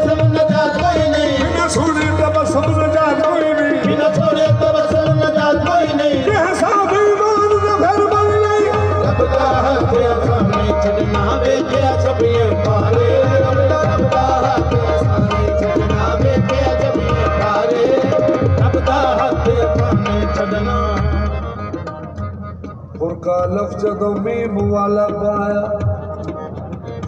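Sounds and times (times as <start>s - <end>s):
tabla playing a fast rhythm: 0.0s - 27.0s
sustained harmonium notes: 6.8s - 23.2s.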